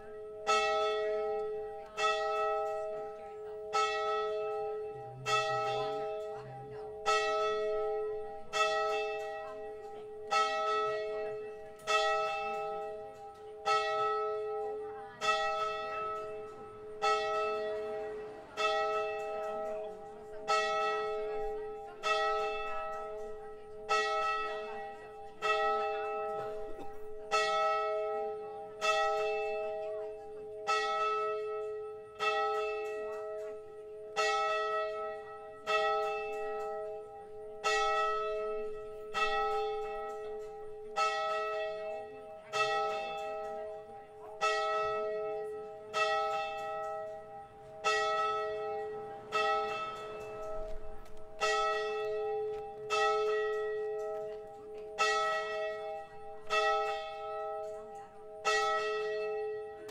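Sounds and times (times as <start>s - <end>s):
church bell tolling: 0.0s - 59.9s.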